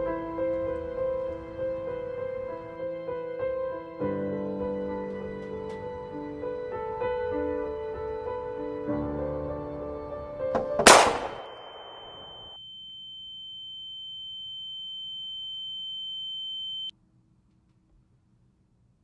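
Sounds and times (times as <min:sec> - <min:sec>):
soft piano music: 0:00.0 - 0:10.8
loud bang: 0:10.6 - 0:12.1
high-pitched ringing tone: 0:11.3 - 0:16.9.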